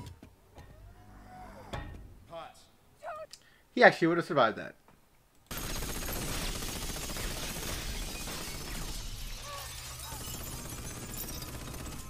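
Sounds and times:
glass shattering and falling: 7.6s - 12.0s.

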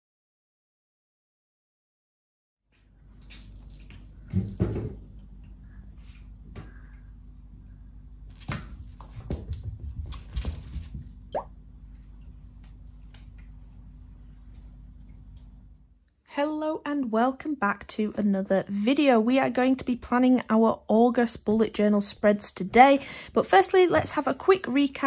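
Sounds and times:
steady low hum: 2.8s - 16.1s
knocks and clicks on floor: 8.4s - 11.1s.

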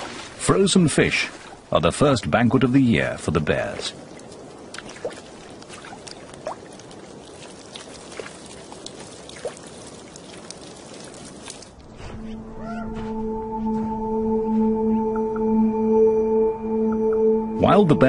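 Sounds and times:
water trickling at ice edge: 3.3s - 11.9s
small clicks and splashes: 3.8s - 11.9s
sustained music tone: 11.9s - 18.0s.

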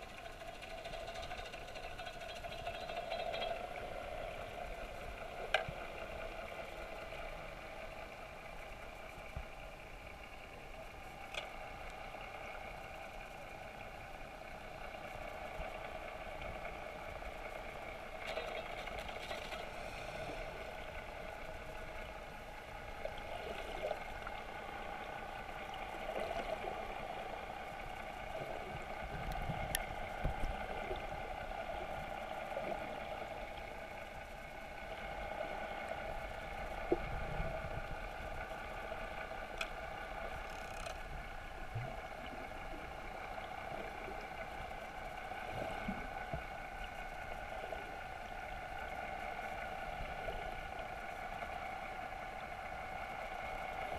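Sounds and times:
faint clicks: 0.0s - 31.1s, 37.9s - 47.8s
muffled underwater hum: 0.0s - 53.9s.

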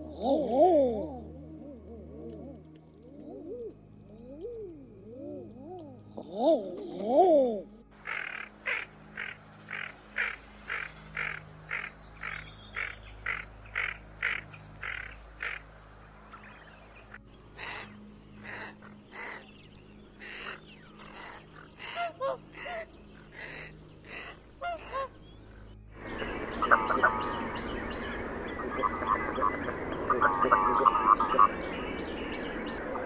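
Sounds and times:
scaup calls: 8.0s - 15.7s, 26.1s - 31.8s
short duck calls: 30.1s - 31.5s.

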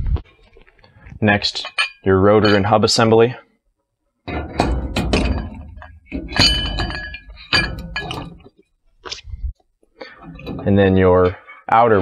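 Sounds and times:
metal knocks and clinks: 1.4s - 3.1s, 4.3s - 8.6s, 10.1s - 11.3s.

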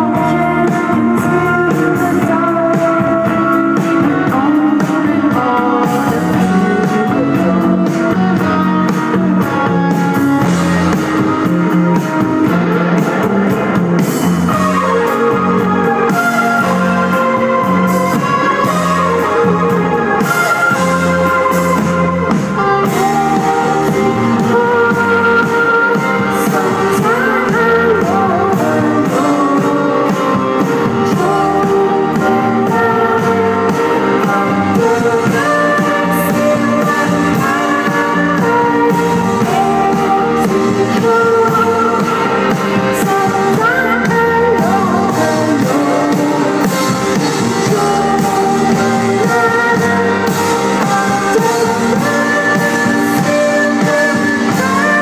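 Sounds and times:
drums: 0.0s - 55.0s
electric guitar: 0.0s - 55.0s
keyboards: 0.0s - 55.0s
woman singing into microphone: 0.0s - 55.0s.

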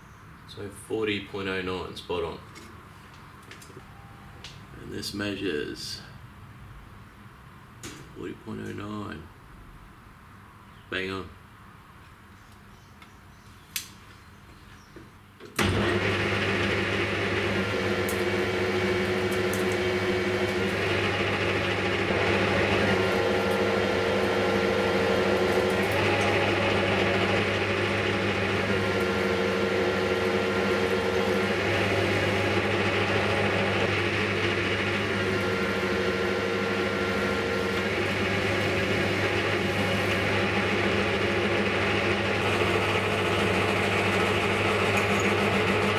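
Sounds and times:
metal lathe running: 15.6s - 45.9s.

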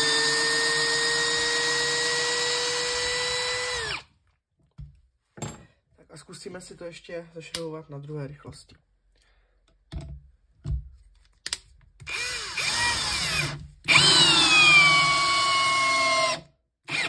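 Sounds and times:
cordless drill whining: 0.0s - 4.1s, 12.1s - 17.0s.

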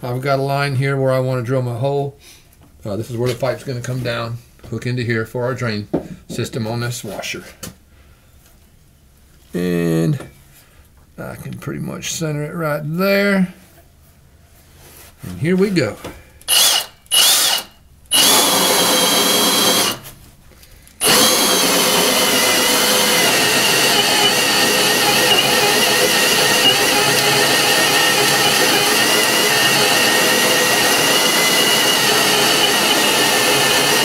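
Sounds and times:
drill with hole saw cutting wood: 16.5s - 20.2s, 21.0s - 34.0s.

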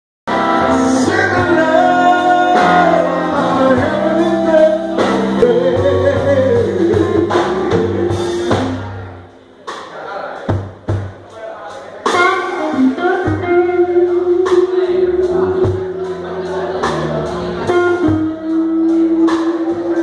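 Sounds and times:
person singing through pa: 0.3s - 8.4s, 12.2s - 16.2s
live blues band playing: 0.3s - 20.0s.

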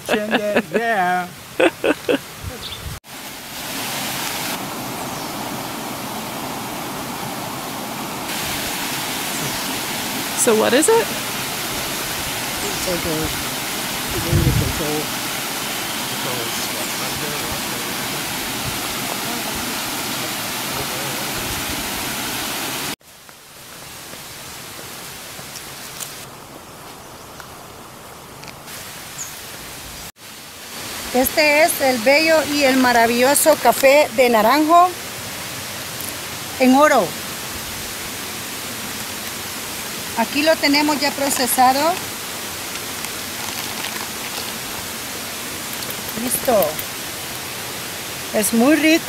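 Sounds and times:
outdoor ambience: 0.0s - 31.2s
water rushing over weir: 3.1s - 23.0s, 30.2s - 49.0s.

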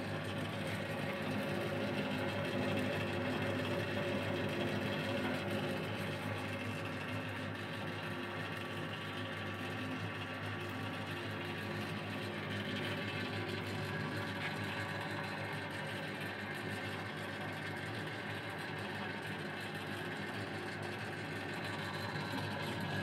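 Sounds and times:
dough mixer motor humming: 0.0s - 23.0s.

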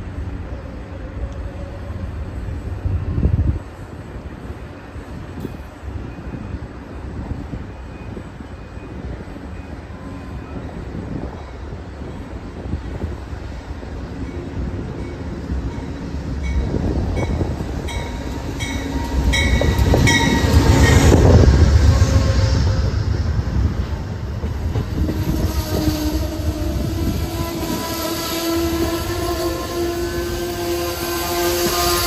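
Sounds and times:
train wheel squeal: 7.3s - 12.7s, 14.2s - 23.2s, 24.7s - 32.0s.

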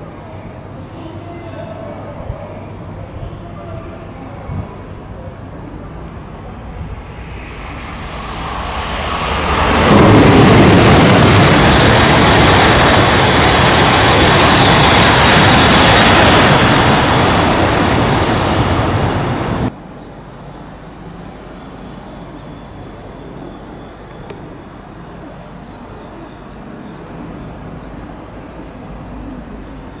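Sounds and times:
high-speed train roaring past: 0.0s - 19.8s.

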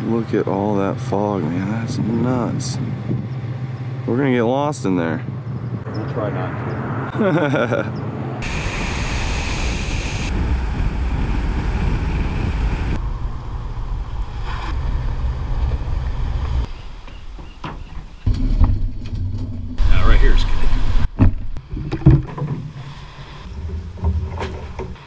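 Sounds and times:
low road rumble: 0.0s - 25.0s
wind rushing over microphone: 0.9s - 7.1s, 8.0s - 16.7s.

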